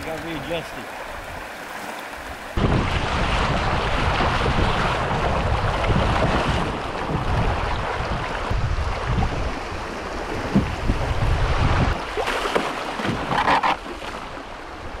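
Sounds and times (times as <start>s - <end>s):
water rushing in river: 0.0s - 15.0s
wind rumble on microphone: 2.3s - 12.3s.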